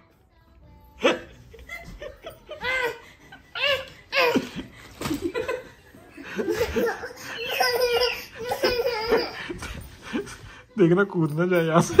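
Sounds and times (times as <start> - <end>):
toddler babbling and giggling: 6.4 - 10.4.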